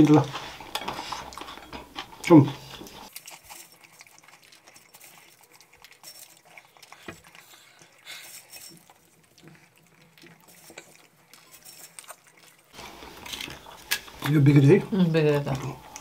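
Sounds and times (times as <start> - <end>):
soft chewing: 0.0 - 16.0.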